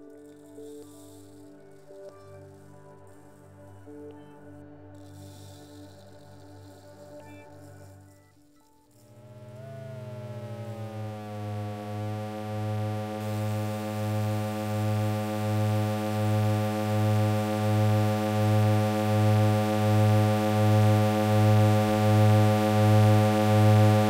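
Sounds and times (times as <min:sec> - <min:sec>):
low synthesizer drone: 0:09.1 - 0:24.0.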